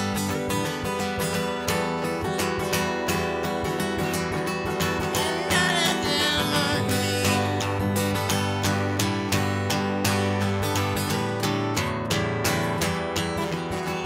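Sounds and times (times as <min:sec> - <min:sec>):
acoustic guitar strumming: 0:00.0 - 0:14.0
man singing: 0:05.0 - 0:07.8.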